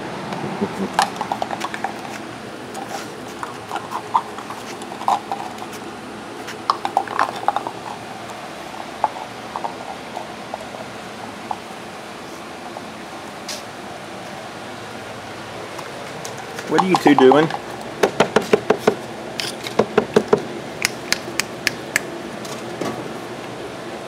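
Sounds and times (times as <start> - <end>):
steady background hum: 0.0 - 24.0
puppy claws clicking on concrete: 0.9 - 11.7, 15.7 - 22.6.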